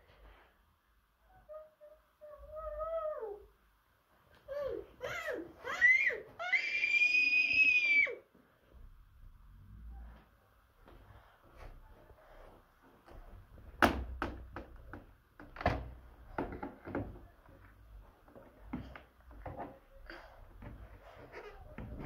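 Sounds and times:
plastic toy parts knocking: 13.8s - 17.2s.

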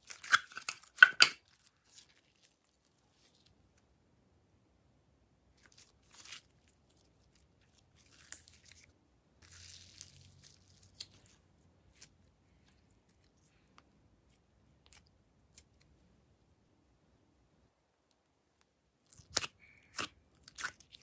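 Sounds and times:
slime crackling and squelching: 0.0s - 3.6s, 5.6s - 15.9s, 19.0s - 21.0s.

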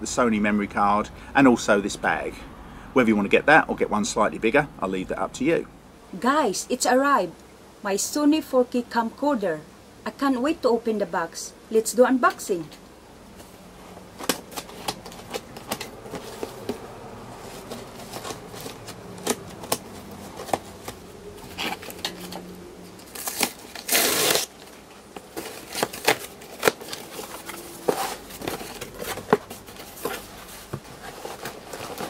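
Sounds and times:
faint steady buzz: 0.0s - 32.0s
cardboard and tape rustling: 13.3s - 32.0s
tape ripping: 17.4s - 32.0s.

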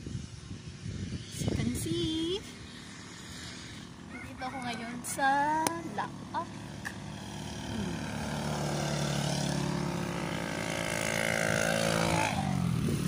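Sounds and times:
vehicle engine passing by: 3.1s - 13.0s.

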